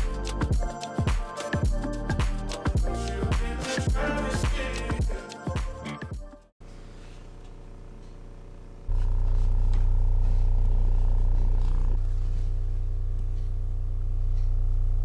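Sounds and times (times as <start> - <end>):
subwoofer low tone hum: 6.6 - 15.0.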